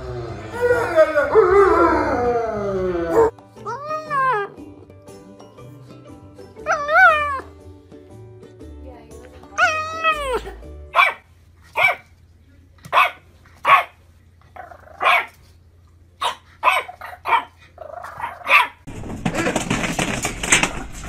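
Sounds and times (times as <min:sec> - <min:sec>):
puppy yapping: 0:09.6 - 0:12.0, 0:12.9 - 0:14.0, 0:14.6 - 0:15.4, 0:16.2 - 0:18.9.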